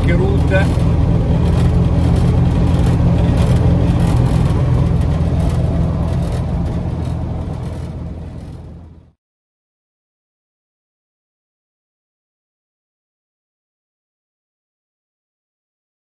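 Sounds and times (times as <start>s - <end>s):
car engine drone: 0.0s - 9.2s
road and wind noise: 0.0s - 9.2s.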